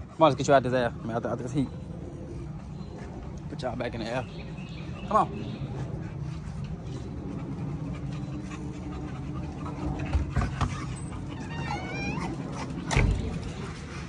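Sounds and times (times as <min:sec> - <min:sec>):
dog whining: 0:10.0 - 0:12.9.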